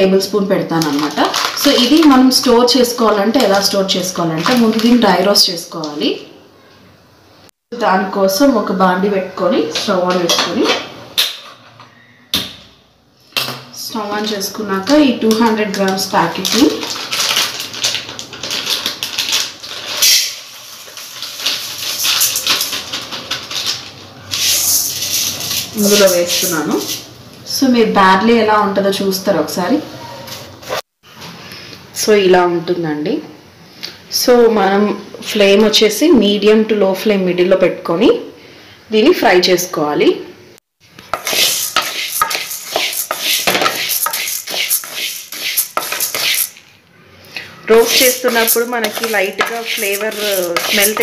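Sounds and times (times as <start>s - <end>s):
plastic packet crinkling: 0.7s - 2.5s, 3.5s - 5.0s, 16.3s - 24.1s, 47.9s - 51.0s
grains scraping in metal pan: 24.4s - 27.0s, 41.0s - 46.6s, 47.7s - 51.0s.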